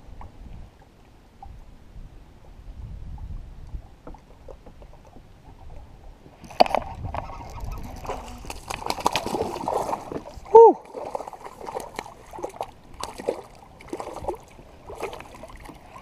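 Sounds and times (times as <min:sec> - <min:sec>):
water lapping around kayak: 0:00.0 - 0:16.0
wind rumble: 0:01.4 - 0:10.5.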